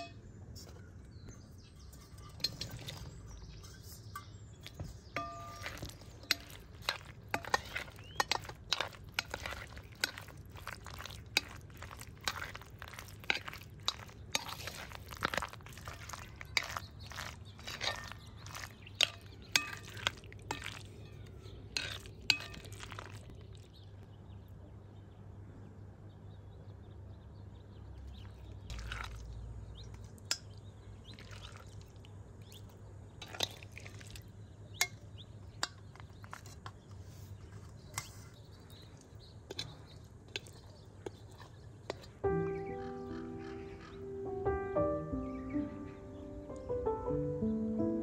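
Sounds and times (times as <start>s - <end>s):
metal spoon clinking against bowls: 0.0s - 0.2s, 1.7s - 21.0s, 21.7s - 23.3s, 33.2s - 36.8s, 39.5s - 42.2s
spoon scraping through wet paste: 1.8s - 23.8s, 28.7s - 42.2s.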